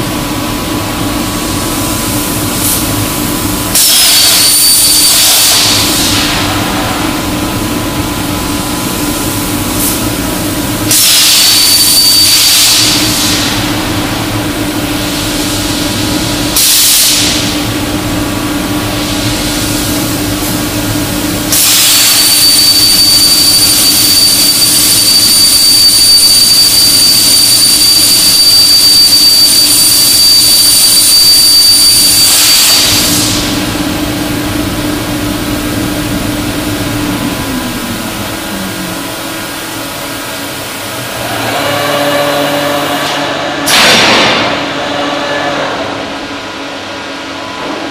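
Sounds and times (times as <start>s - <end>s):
steady low hum: 0.0s - 11.5s, 12.8s - 47.9s
plasma cutter arc hissing: 1.7s - 7.2s, 8.8s - 13.8s, 16.5s - 17.8s, 18.8s - 33.8s.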